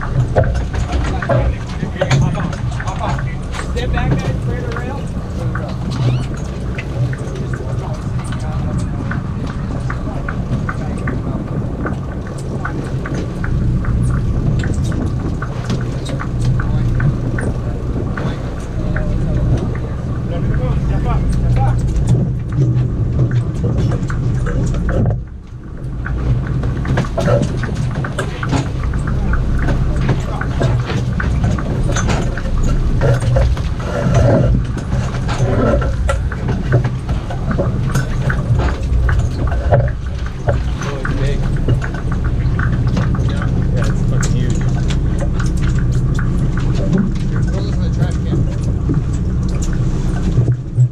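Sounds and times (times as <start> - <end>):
boat engine rumble: 0.0 - 50.9
clicks and knocks from gear: 21.3 - 50.9.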